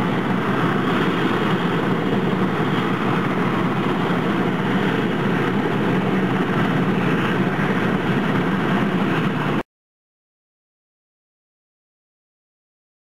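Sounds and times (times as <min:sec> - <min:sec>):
helicopter engines and rotors: 0:00.0 - 0:09.7.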